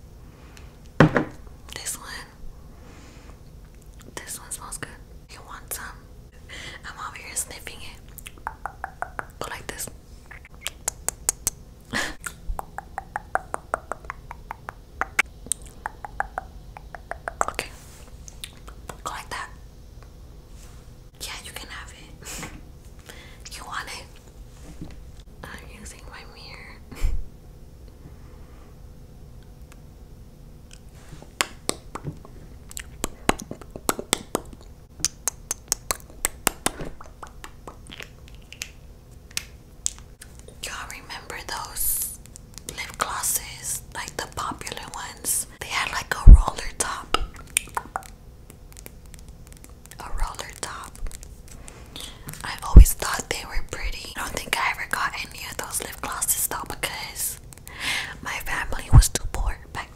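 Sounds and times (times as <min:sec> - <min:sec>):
wet lip smacks and pops: 0:08.1 - 0:09.4, 0:10.3 - 0:11.6, 0:12.2 - 0:17.6, 0:32.7 - 0:40.4, 0:42.2 - 0:43.1, 0:46.8 - 0:51.3
lips smacking and kissing: 0:10.3 - 0:11.6, 0:32.7 - 0:40.3
breathy hiss: 0:57.1 - 0:58.7.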